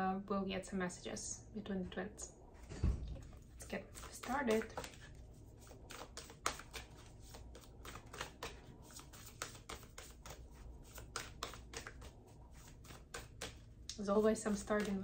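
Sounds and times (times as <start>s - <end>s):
cards being shuffled: 3.3s - 15.0s.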